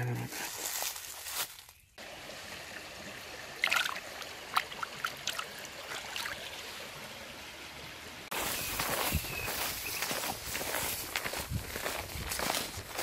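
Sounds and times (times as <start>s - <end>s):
stream running over stones: 0.5s - 11.2s
water splashes and drips: 1.2s - 8.3s.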